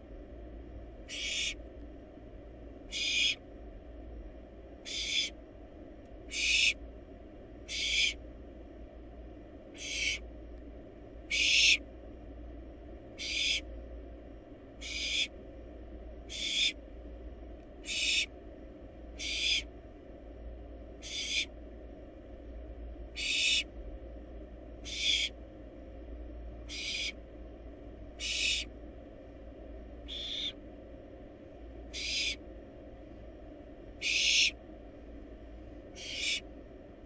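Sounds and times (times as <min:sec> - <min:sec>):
faint steady hum: 0:00.0 - 0:37.0
owl chick hissing call: 0:01.1 - 0:01.6, 0:02.9 - 0:03.4, 0:04.9 - 0:05.3, 0:06.3 - 0:06.8, 0:07.7 - 0:08.2, 0:09.8 - 0:10.2, 0:11.3 - 0:11.8, 0:13.2 - 0:13.6, 0:14.8 - 0:15.3, 0:16.3 - 0:16.8, 0:17.8 - 0:18.3, 0:19.2 - 0:19.7, 0:21.0 - 0:21.5, 0:23.2 - 0:23.7, 0:24.8 - 0:25.3, 0:26.7 - 0:27.2, 0:28.2 - 0:28.7, 0:30.1 - 0:30.6, 0:31.9 - 0:32.4, 0:34.0 - 0:34.6, 0:36.0 - 0:36.4.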